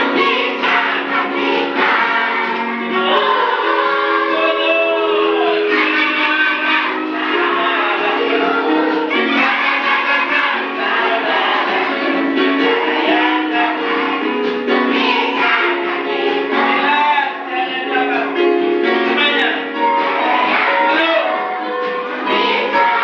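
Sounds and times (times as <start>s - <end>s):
children singing together: 0.0s - 19.2s, 19.8s - 23.0s
man singing into a microphone: 4.3s - 8.4s.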